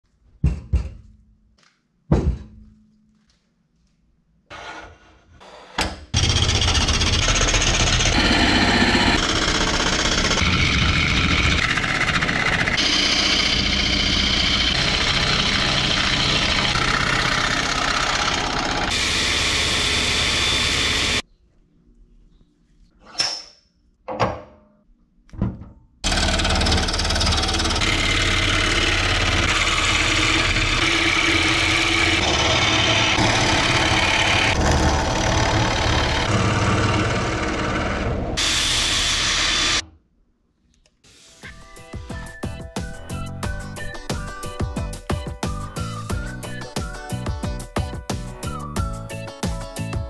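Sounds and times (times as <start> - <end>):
wood lathe cutting bowl: 6.2 - 21.2, 26.0 - 39.8.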